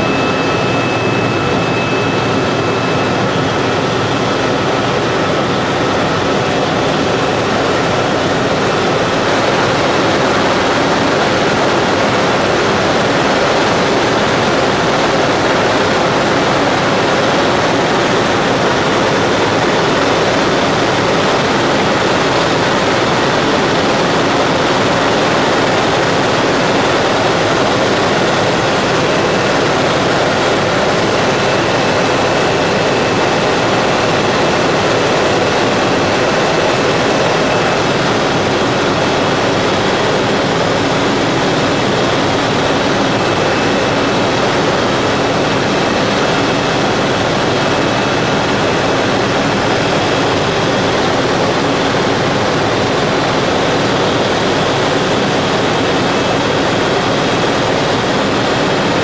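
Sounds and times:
helicopter cabin rushing noise: 0.0s - 59.0s.

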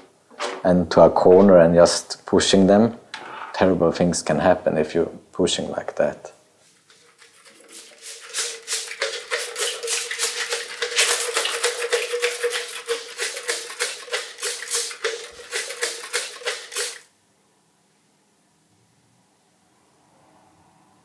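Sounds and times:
tool scraping a painted wall: 6.6s - 17.1s.

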